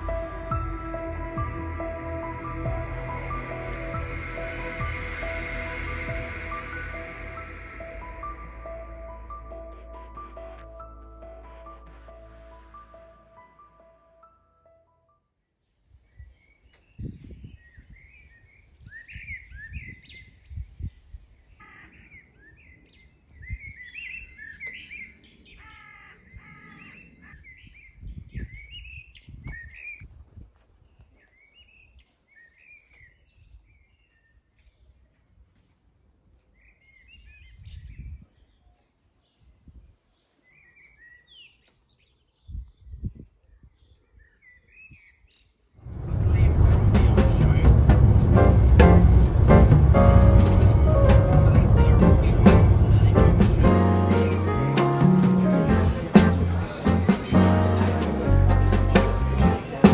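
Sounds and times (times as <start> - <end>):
low rumbles: 0.0 - 13.3, 45.8 - 59.9
small birds chirping and singing: 15.7 - 35.8, 36.4 - 59.9.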